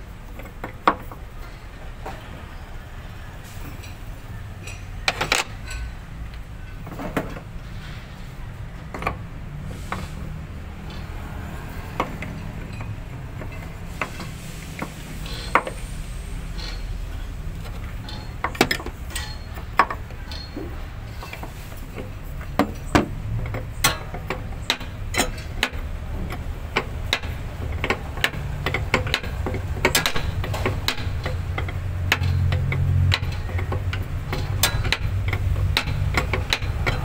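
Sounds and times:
wrench clicking on a bolt: 10.8s - 37.0s.

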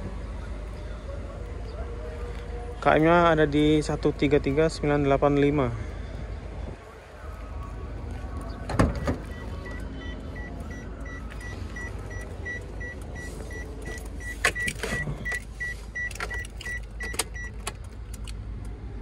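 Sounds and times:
car warning chime beeping: 8.9s - 17.7s.

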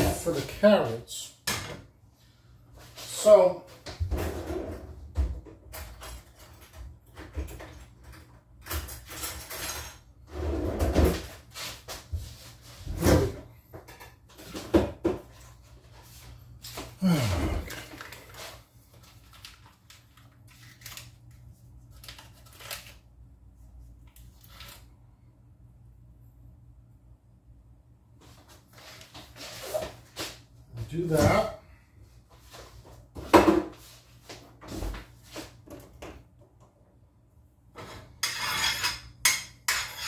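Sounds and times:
cookware knocking and scraping: 37.8s - 40.0s.

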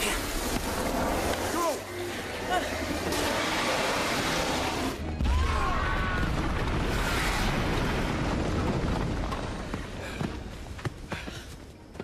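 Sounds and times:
explosion boom and rumble: 5.2s - 10.1s.

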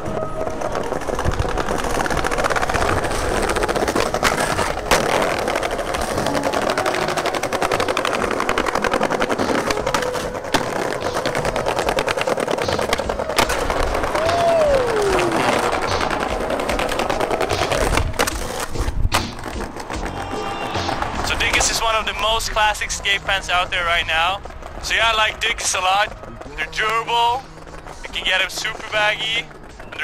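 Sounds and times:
skateboard wheels rolling on paving: 0.0s - 30.0s
skateboard knocks: 0.2s - 22.2s.

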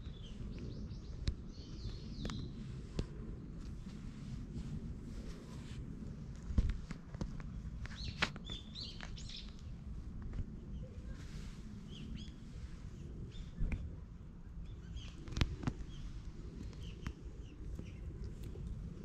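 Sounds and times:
small birds chirping: 0.0s - 2.6s, 7.9s - 9.8s, 10.6s - 12.6s, 14.5s - 18.7s
low background rumble: 0.0s - 19.0s.

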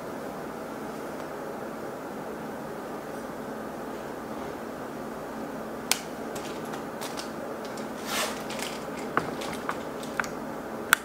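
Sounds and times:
background hiss: 4.7s - 10.8s
light clicks and taps: 5.9s - 11.0s
short rustle: 6.3s - 10.4s.

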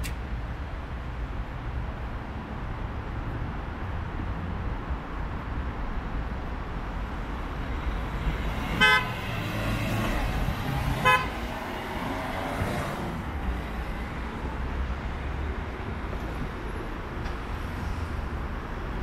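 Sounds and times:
road traffic noise: 0.0s - 19.0s
car horn toots: 8.8s - 9.2s, 11.0s - 11.4s.

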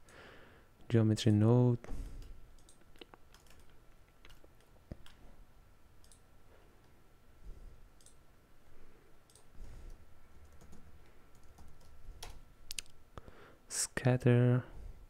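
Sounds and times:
computer mouse clicks: 2.2s - 5.2s, 6.0s - 6.2s, 8.0s - 8.2s, 9.3s - 13.0s
keyboard keystrokes: 2.2s - 5.2s.

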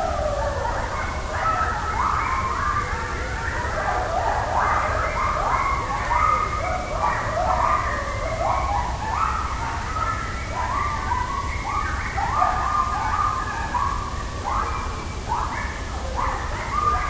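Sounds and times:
coyotes howling and yipping: 0.0s - 17.0s.

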